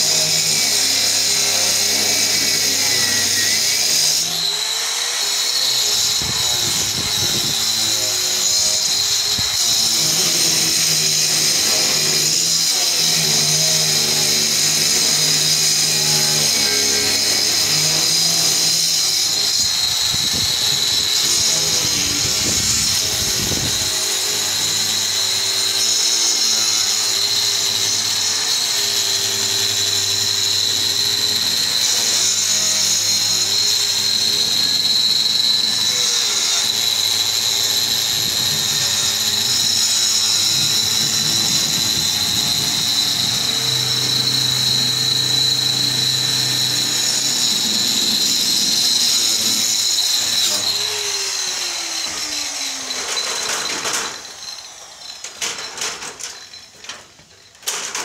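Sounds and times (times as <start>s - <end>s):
angle grinder cutting masonry: 0.0s - 58.0s.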